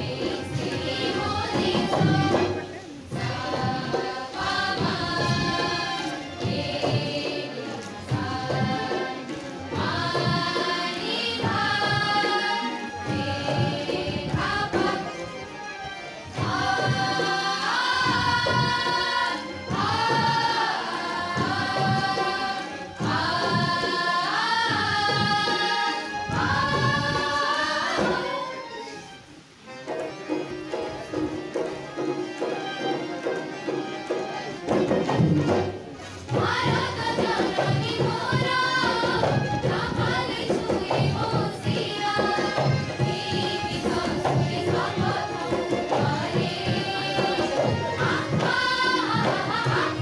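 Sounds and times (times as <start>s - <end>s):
choir singing in chorus: 0.0s - 30.4s, 31.1s - 50.0s
musical accompaniment: 0.0s - 50.0s.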